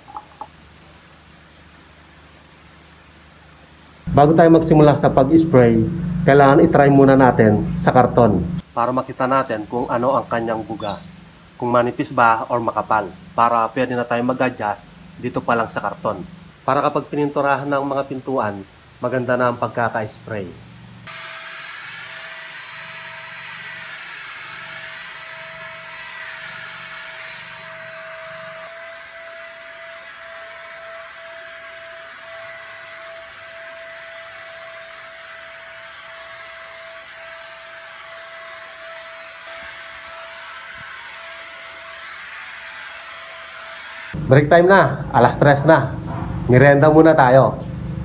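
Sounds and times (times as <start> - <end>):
spray gun motor whine: 4.1 - 8.7, 21.0 - 44.2.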